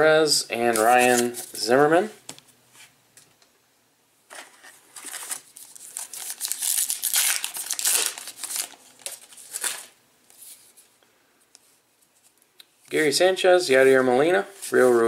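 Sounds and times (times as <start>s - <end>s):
wrapper crinkling and tearing: 5.0s - 10.0s.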